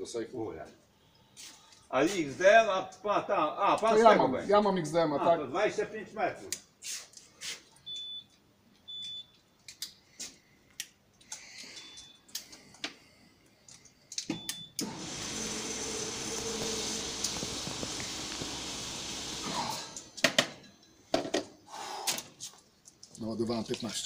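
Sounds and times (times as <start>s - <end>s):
machine noise with low hum: 14.4s - 20.2s.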